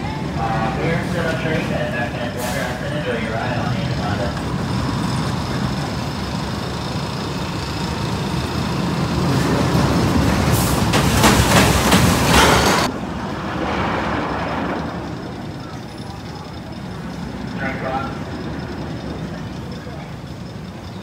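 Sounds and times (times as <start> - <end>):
roller coaster rumbling on track: 0.0 - 21.0
hissing rush: 0.4 - 15.9.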